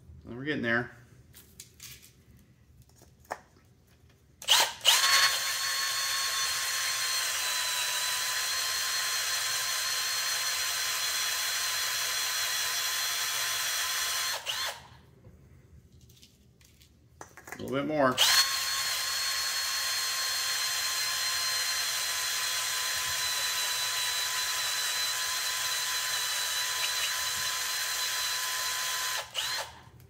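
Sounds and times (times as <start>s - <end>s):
cordless drill cutting plastic: 4.4s - 14.9s, 18.2s - 29.9s.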